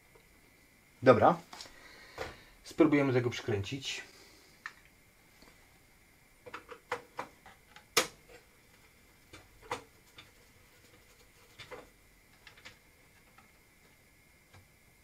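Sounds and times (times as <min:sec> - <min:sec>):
clicks and knocks of computer parts: 0:06.4 - 0:08.5, 0:09.3 - 0:10.4, 0:11.4 - 0:13.5.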